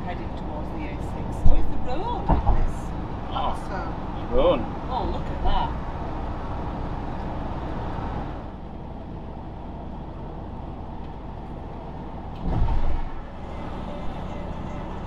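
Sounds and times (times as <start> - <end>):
motorhome road and engine noise: 0.0 - 15.0
loud low rumble: 10.6 - 15.0.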